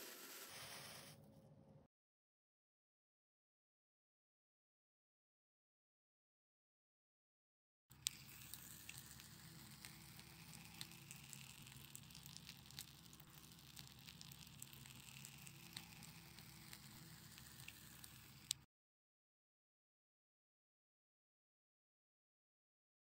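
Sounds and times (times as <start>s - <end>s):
fire hissing: 0.0s - 1.1s, 8.1s - 18.6s
campfire embers crackling: 8.0s - 18.6s.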